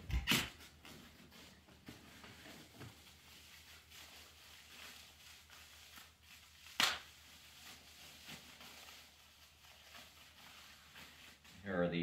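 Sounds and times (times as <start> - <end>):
plastic packaging rustling: 0.0 - 11.8
sharp plastic crackle: 5.7 - 9.1.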